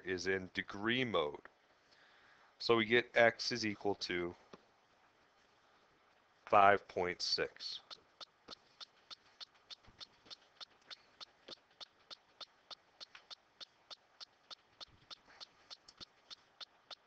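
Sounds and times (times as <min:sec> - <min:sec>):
faint steady ticking: 0:04.0 - 0:17.0.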